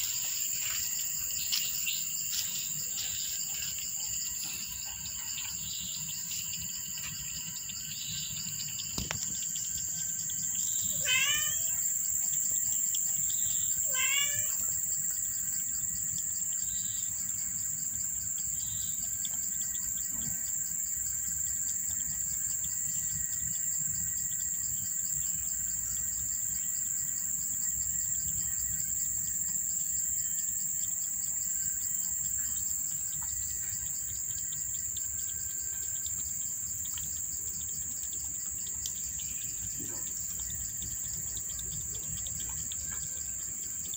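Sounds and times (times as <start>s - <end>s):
insects trilling: 0.0s - 43.9s.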